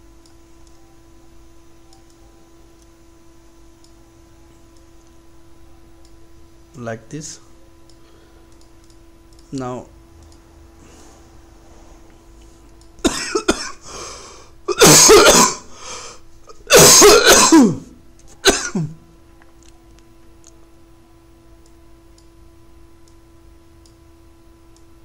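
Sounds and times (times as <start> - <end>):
person coughing: 13.0 - 14.0, 14.7 - 15.8, 16.5 - 19.0.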